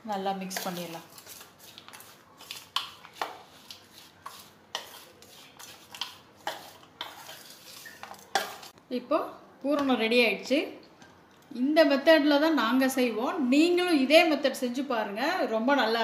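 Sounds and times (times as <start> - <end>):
fingers scraping steel bowl: 3.2 - 8.2.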